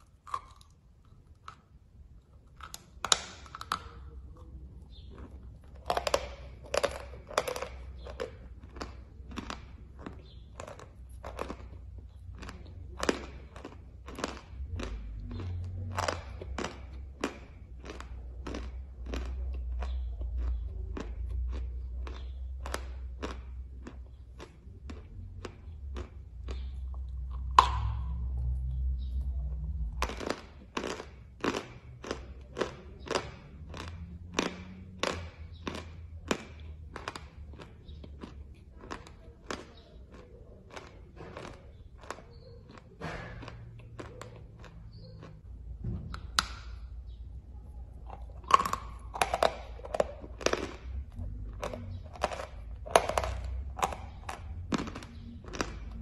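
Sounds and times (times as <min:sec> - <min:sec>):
chewing with dry crunch: 0:00.0 - 0:56.0.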